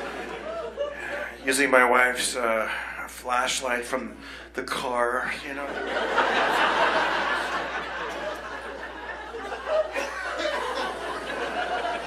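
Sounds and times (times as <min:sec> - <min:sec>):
audience laughing: 0:00.0 - 0:01.4, 0:05.7 - 0:12.0.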